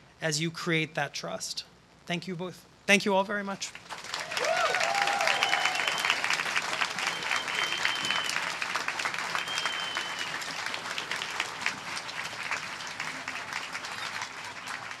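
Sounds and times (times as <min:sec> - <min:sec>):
audience applauding: 0:03.8 - 0:15.0
high held whistle: 0:04.9 - 0:08.5, 0:09.2 - 0:10.7.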